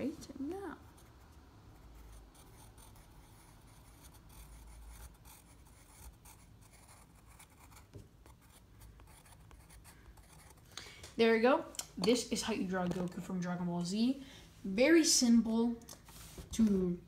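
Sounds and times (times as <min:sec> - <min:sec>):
pencil writing on paper: 0:00.8 - 0:10.6.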